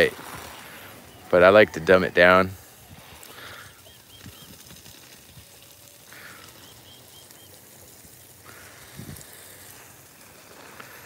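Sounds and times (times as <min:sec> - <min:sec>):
garden hose spraying water: 0:00.0 - 0:11.0
bird chirping: 0:02.6 - 0:04.9, 0:05.6 - 0:08.0.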